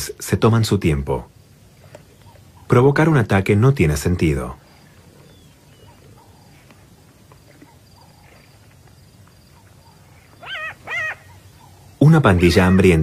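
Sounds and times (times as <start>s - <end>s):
faint open-air background: 0.0s - 13.0s
jackal whining: 4.8s - 12.0s.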